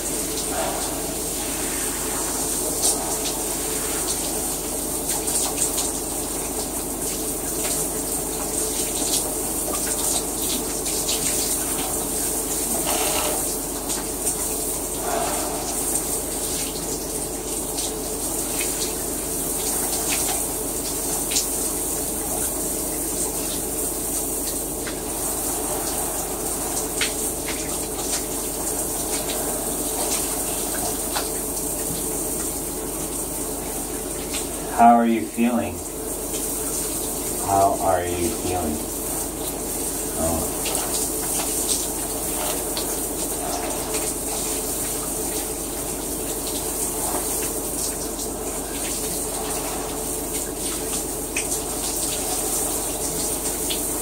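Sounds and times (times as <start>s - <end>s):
shower spray running: 0.0s - 54.0s.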